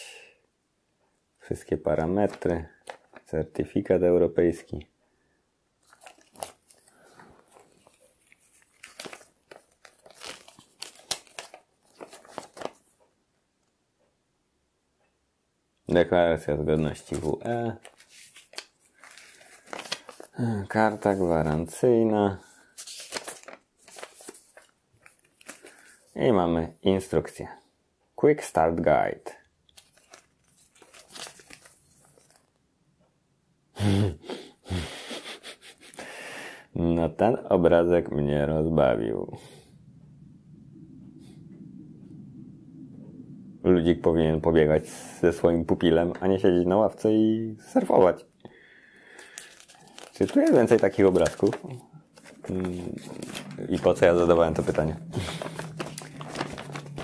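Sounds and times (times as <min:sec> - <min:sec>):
paper rustling and crinkling: 0:05.8 - 0:12.9, 0:16.8 - 0:21.8, 0:22.5 - 0:26.2, 0:29.7 - 0:32.6, 0:49.1 - 0:57.0
man laughing: 0:33.8 - 0:36.0, 0:55.1 - 0:55.7.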